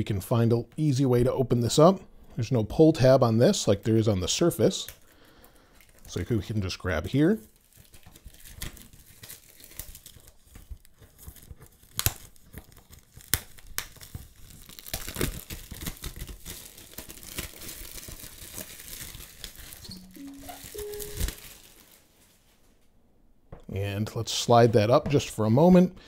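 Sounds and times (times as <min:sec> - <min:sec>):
plastic wrapping crinkling and tearing: 0:04.8 - 0:22.7.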